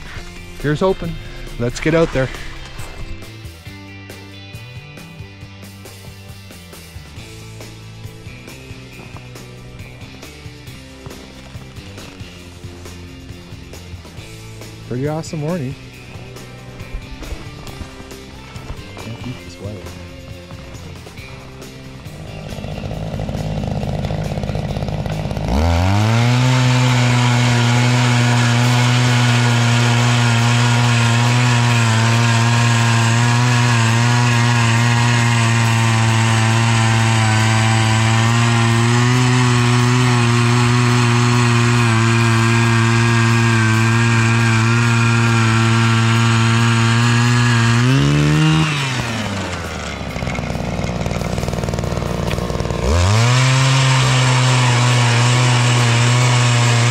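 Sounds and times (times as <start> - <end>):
ice auger engine drilling: 0.0 - 3.5, 7.2 - 56.9.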